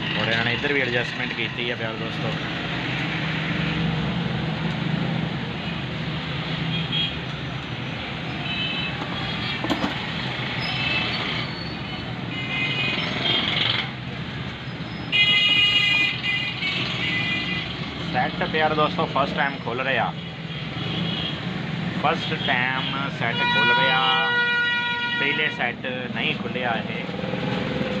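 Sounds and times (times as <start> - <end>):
street traffic: 0.0 - 28.0
vehicle horns: 6.7 - 7.3, 8.2 - 10.0, 10.6 - 13.7, 15.1 - 17.8, 20.3 - 21.5, 22.1 - 25.7.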